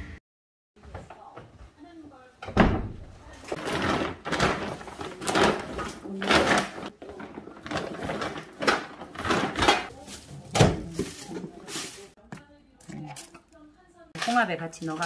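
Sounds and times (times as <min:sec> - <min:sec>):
plastic bag rustling: 0:03.5 - 0:12.2
items knocking together: 0:03.5 - 0:13.4.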